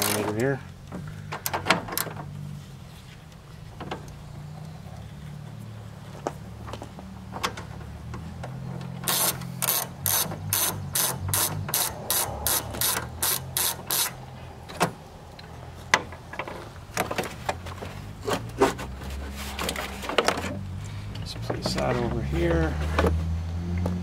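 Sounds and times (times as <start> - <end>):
socket ratchet clicking: 9.1 - 14.2.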